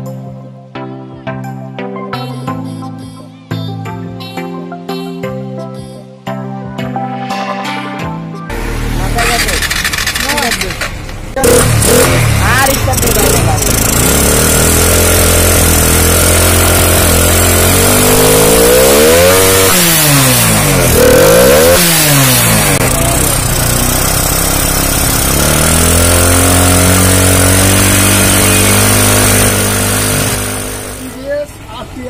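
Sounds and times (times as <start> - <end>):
motorcycle engine idling and revving: 8.5 - 32.0.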